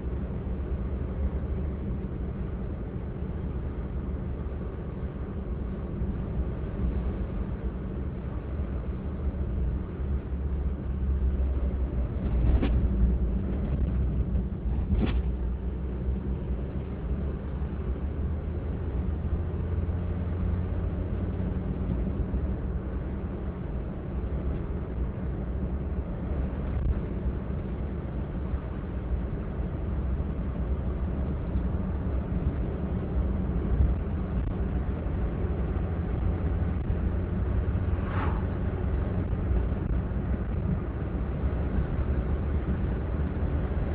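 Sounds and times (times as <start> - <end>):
car engine and road rumble: 0.0 - 43.9.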